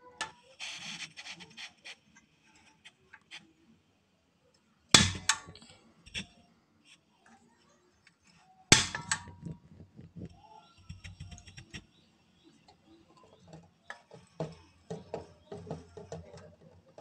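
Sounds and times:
light clicks and knocks: 12.7s - 17.0s.

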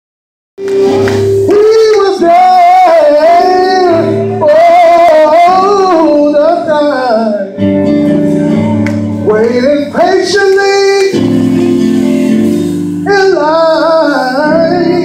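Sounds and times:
sustained keyboard chords: 0.6s - 15.0s
person singing gospel: 0.8s - 15.0s.

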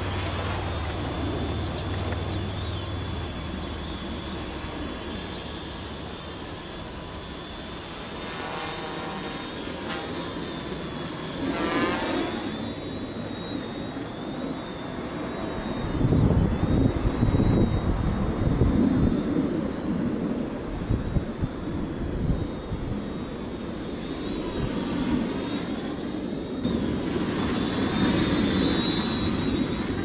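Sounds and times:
quadcopter motors buzzing: 0.0s - 30.0s.

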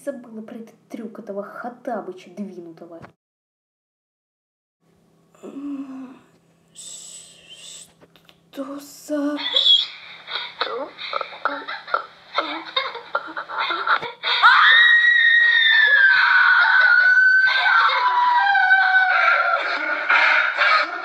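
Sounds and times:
high-pitched scream: 14.3s - 21.0s
choppy vocal sounds: 16.8s - 21.0s.

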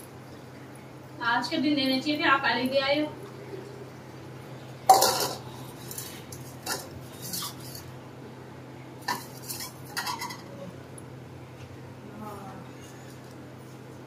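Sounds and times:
metal utensils clinking: 4.9s - 7.8s, 9.0s - 10.5s.

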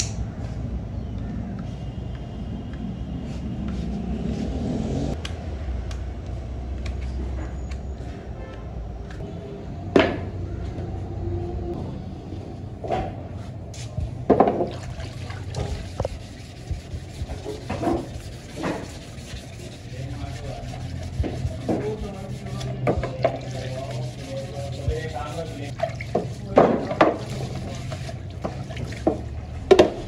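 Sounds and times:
running water: 14.6s - 29.4s
hands rubbing: 15.4s - 26.4s.

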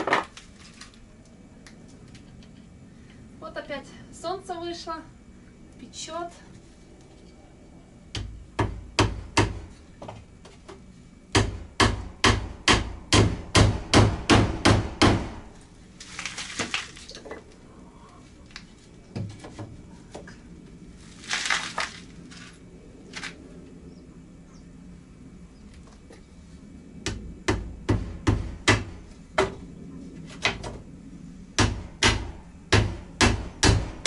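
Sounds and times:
rustling noise: 15.7s - 17.4s, 20.8s - 23.4s.

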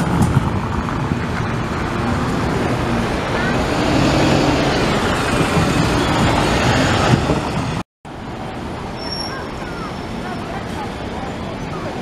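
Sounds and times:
bus approaching: 0.0s - 12.0s
bus engine pulling away: 0.0s - 12.0s
street traffic: 0.0s - 12.0s.

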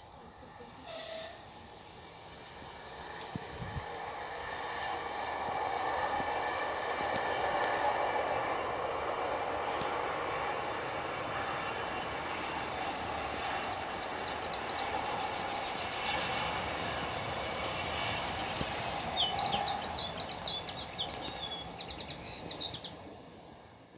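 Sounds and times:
passing train rumble: 0.0s - 23.9s
birds trilling and chirping: 13.2s - 16.6s, 17.3s - 23.0s.

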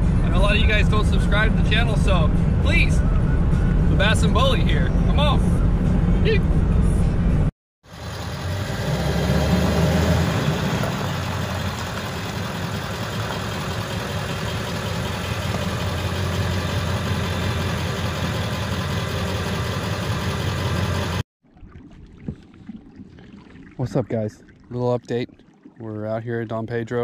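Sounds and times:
truck engine rumble: 0.0s - 21.2s.

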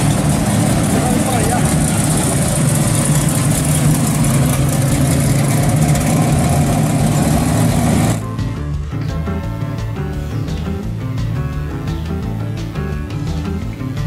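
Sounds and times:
music: 0.0s - 1.9s, 5.8s - 14.0s
car engine driving past: 0.0s - 8.4s.

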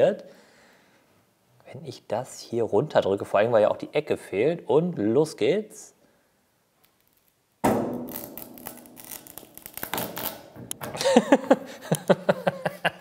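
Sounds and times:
wood crackling and splintering: 8.1s - 10.4s
man laughing: 10.9s - 13.0s.

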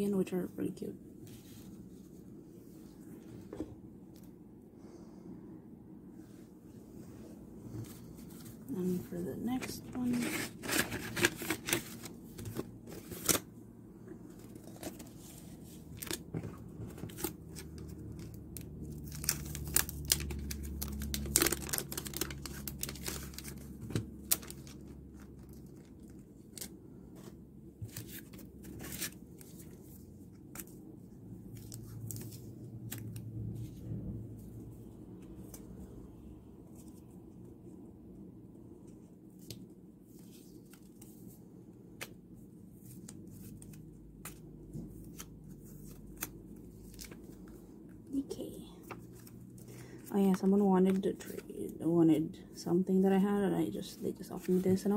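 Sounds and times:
paper and plastic rustling: 7.7s - 13.5s, 14.2s - 30.8s, 53.8s - 54.9s.

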